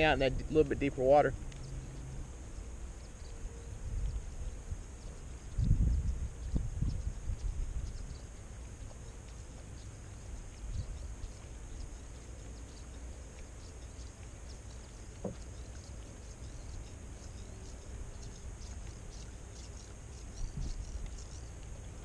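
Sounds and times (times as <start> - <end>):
faint high hiss: 0.0 - 22.0
small ticks: 1.3 - 22.0
wind buffeting microphone: 3.8 - 8.3, 20.3 - 21.3.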